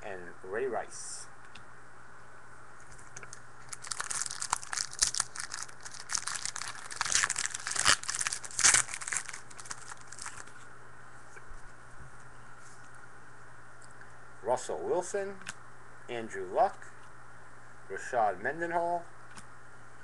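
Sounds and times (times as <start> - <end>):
card pack wrapper tearing and crinkling: 3.6 - 10.5.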